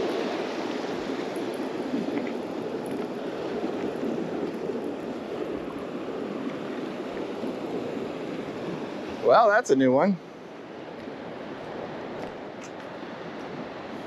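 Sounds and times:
waves breaking on beach: 0:00.0 - 0:14.0.

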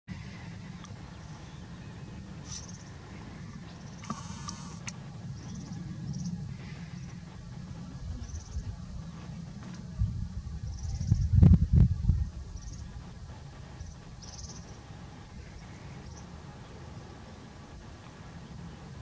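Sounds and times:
small birds chirping: 0:00.1 - 0:19.0
wind rumble on microphone: 0:00.1 - 0:19.0.

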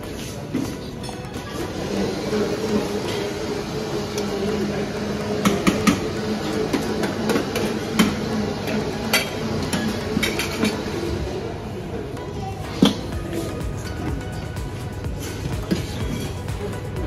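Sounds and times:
room noise: 0:00.0 - 0:17.0
metal utensils and lids clinking: 0:05.3 - 0:11.0.

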